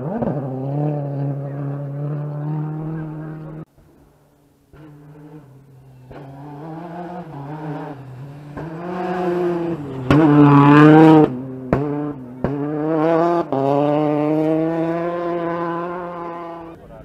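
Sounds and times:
rally car engine passing: 0.0 - 17.0.

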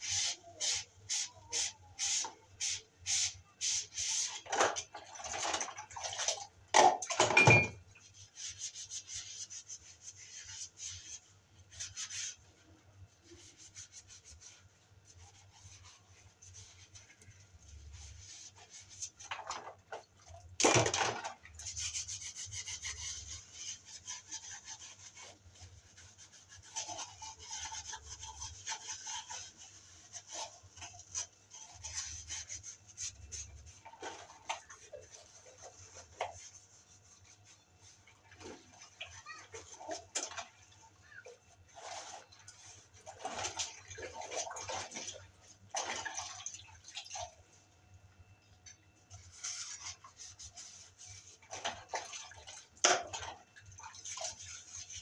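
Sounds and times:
sponge scrubbing dishes: 0.0 - 47.8, 48.6 - 55.0
dishes clattering: 6.8 - 7.8.

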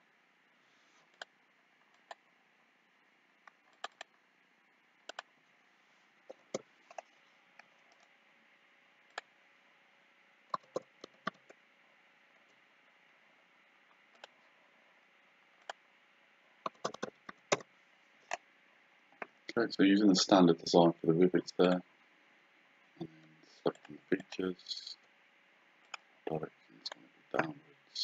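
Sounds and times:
faint steady hiss: 0.0 - 28.0
computer mouse buttons clicking: 3.5 - 4.1, 5.1 - 5.3, 10.5 - 11.6, 14.1 - 14.3, 16.6 - 17.7.

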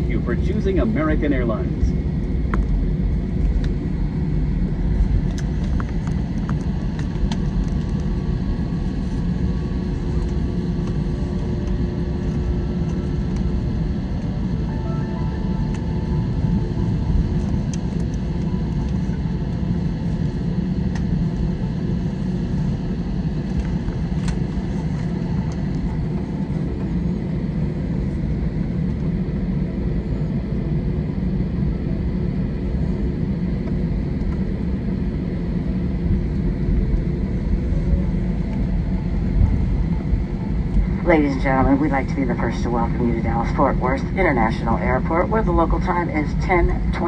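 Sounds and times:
aircraft cabin rumble: 0.0 - 47.0
faint steady whine: 0.0 - 47.0.

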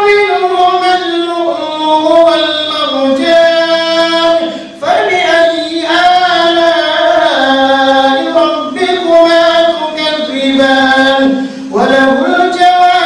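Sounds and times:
man chanting into a microphone: 0.0 - 13.0.

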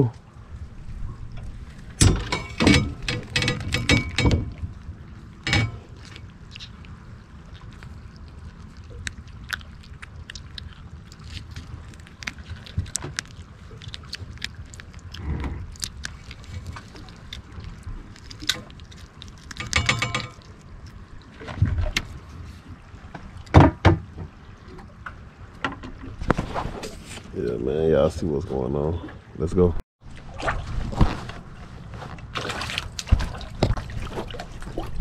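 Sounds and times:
water lapping against a boat: 0.0 - 35.0.

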